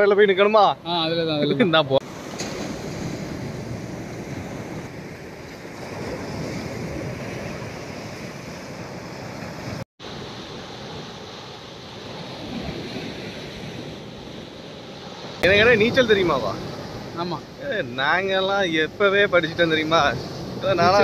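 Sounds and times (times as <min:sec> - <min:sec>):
sea surf washing in: 0:00.0 - 0:21.0
wind buffeting microphone: 0:02.0 - 0:09.8.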